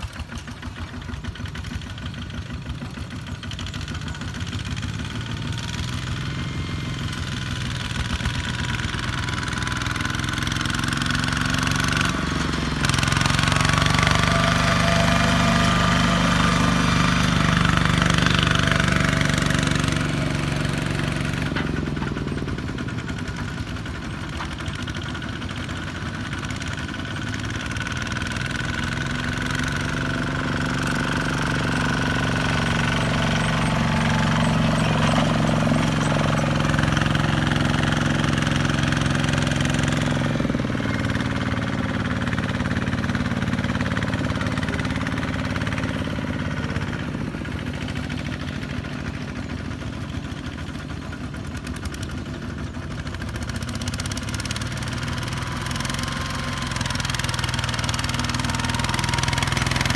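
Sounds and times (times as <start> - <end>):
diesel tractor engines running: 0.0 - 59.9.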